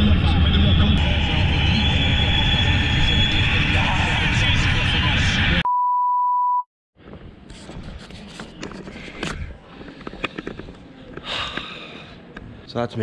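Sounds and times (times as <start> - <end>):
steady electronic beep: 5.6 - 6.7
outdoor ambience: 7.0 - 13.0.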